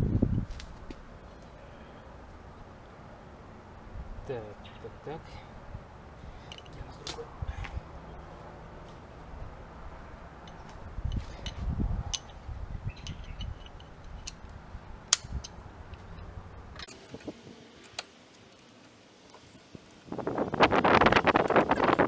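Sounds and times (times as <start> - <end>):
sharp metallic click: 15.1 - 16.0.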